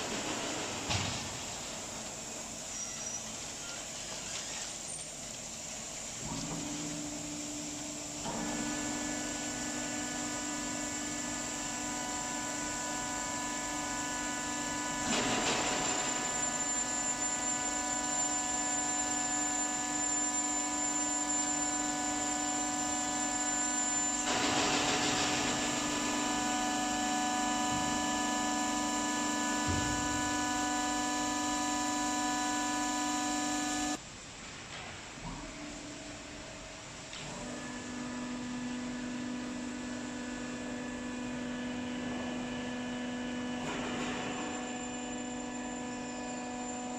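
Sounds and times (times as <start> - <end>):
machine motors whining: 7.6 - 34.0.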